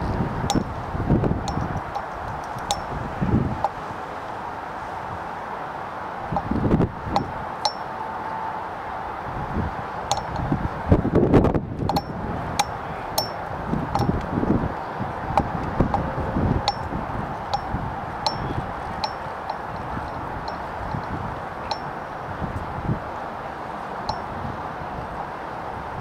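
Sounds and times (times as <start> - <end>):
wind rumbling on microphone: 0.0 - 26.0
light metallic clinks: 1.5 - 3.0, 7.2 - 7.8, 10.1 - 10.4, 11.9 - 13.4, 16.7 - 16.9, 17.5 - 21.9, 24.1 - 24.3.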